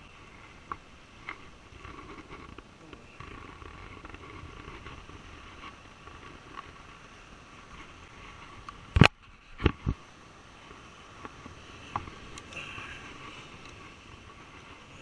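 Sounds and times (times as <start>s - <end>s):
surf: 0.0s - 15.0s
wind noise: 0.0s - 15.0s.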